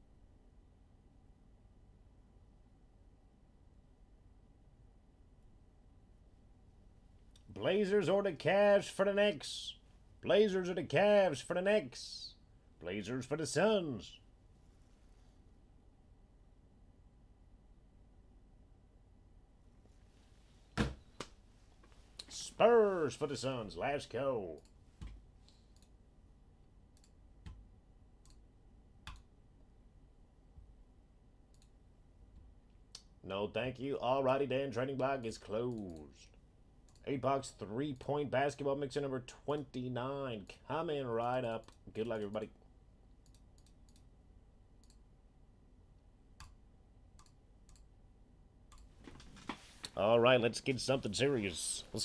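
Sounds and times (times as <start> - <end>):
computer keys clicking: 29.0 - 29.3, 43.2 - 44.1, 47.2 - 47.9.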